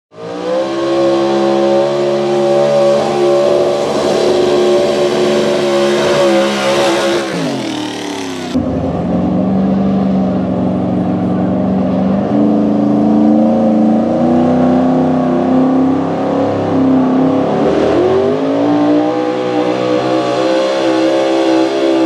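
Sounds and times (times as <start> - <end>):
lower engine running: 0.1 - 22.0
truck engine at high revs: 0.1 - 22.0.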